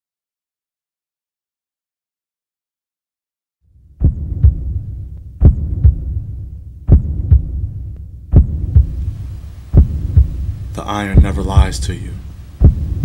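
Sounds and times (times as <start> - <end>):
heartbeat thumps: 3.9 - 13.0
low drone: 4.0 - 13.0.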